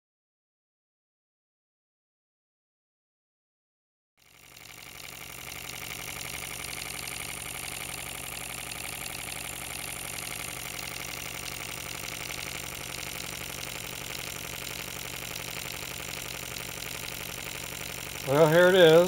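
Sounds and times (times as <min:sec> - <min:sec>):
model steam engine running: 0:04.2 - 0:19.0.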